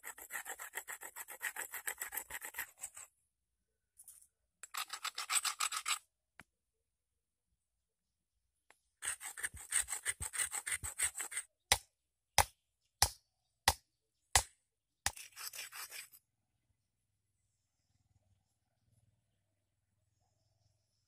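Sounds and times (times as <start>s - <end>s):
stone grinding on stone: 0.0s - 3.1s, 4.6s - 6.0s, 9.0s - 11.5s, 15.1s - 16.2s.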